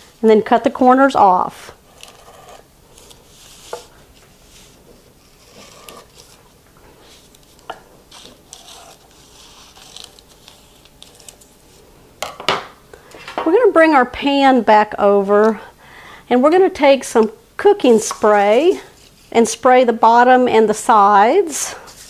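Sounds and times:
paper rustling and crinkling: 0:02.9 - 0:11.8.

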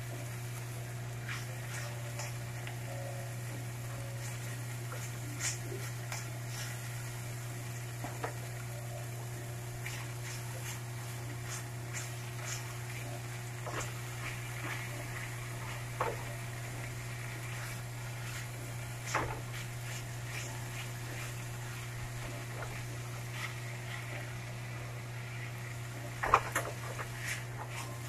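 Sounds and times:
faint sizzle: 0:00.0 - 0:28.0
steady low hum: 0:00.0 - 0:28.0
spatula scraping a frying pan: 0:01.2 - 0:02.4, 0:04.2 - 0:06.9, 0:09.8 - 0:24.8, 0:26.2 - 0:28.0.

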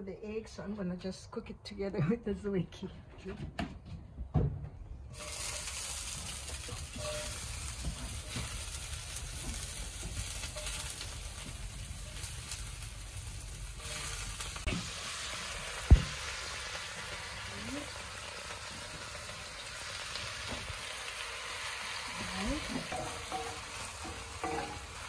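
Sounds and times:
food sizzling as it fries: 0:05.1 - 0:25.0
loud knock: 0:15.9 - 0:16.2.

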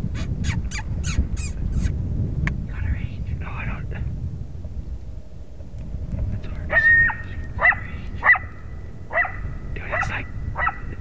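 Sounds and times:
coyote yips and barks: 0:00.1 - 0:01.9, 0:06.7 - 0:11.0.

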